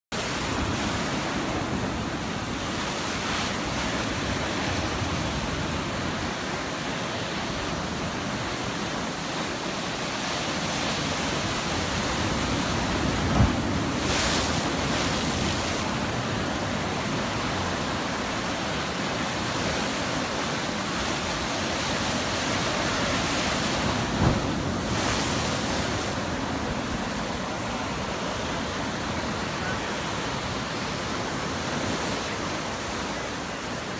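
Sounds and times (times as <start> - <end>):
ocean surf breaking: 0.2 - 33.9.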